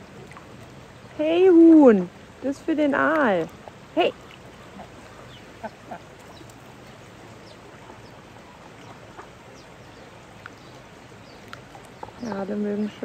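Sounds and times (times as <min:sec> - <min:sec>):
stream rushing: 0:00.0 - 0:13.0.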